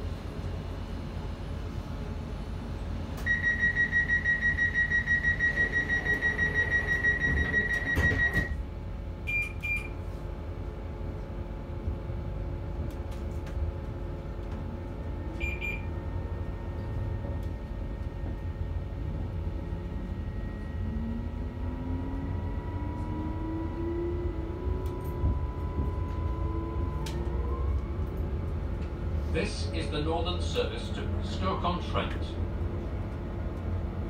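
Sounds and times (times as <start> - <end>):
low hum of train: 0.0 - 34.0
short electronic beeps: 15.4 - 15.9.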